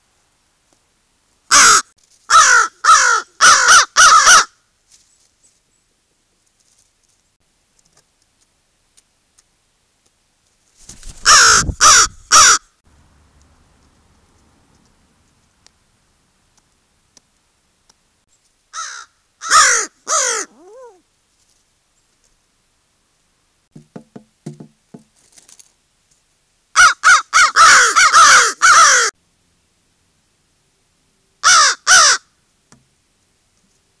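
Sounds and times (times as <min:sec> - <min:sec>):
crow cawing: 0:01.5 - 0:04.5, 0:11.2 - 0:12.7, 0:18.7 - 0:21.0, 0:26.8 - 0:29.1, 0:31.4 - 0:32.3.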